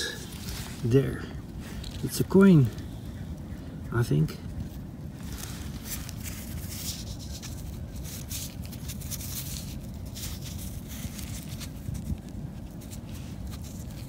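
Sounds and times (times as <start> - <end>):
wind rumbling on microphone: 0.0 - 14.0
light rustles: 4.4 - 14.0.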